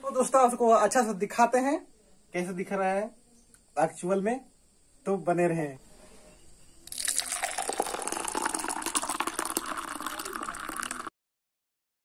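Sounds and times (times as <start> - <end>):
drink pouring into steel tumbler: 6.9 - 11.1.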